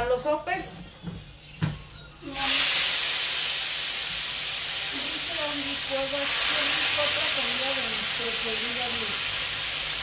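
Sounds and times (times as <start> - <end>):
food sizzling in hot oil: 2.3 - 10.0.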